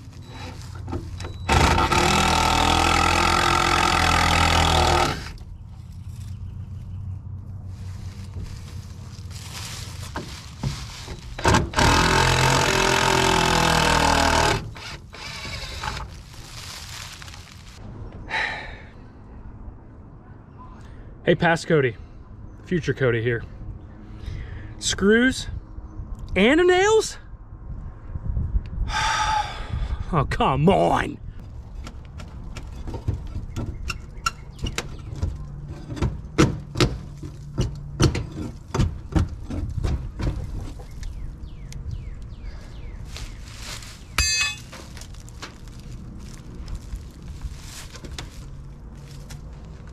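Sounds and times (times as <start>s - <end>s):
cordless drill motor: 11.7s - 16.0s.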